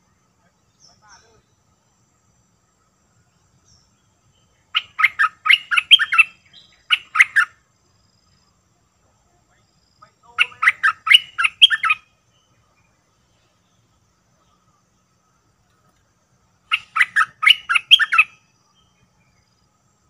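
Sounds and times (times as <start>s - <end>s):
bird singing bubbling whistles: 4.8s - 7.5s, 10.5s - 12.0s, 16.7s - 18.3s.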